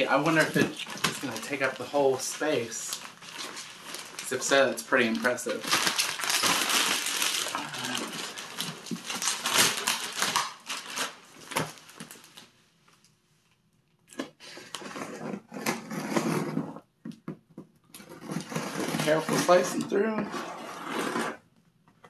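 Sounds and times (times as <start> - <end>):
plastic bag crinkling: 0.0 - 12.5
cardboard scraping: 14.8 - 16.8, 18.0 - 21.4.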